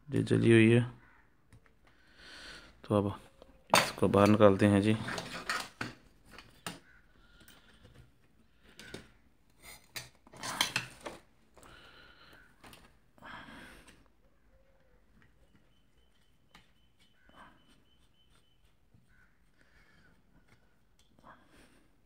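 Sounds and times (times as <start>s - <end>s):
circuit board and metal case clattering: 3.7s - 6.8s.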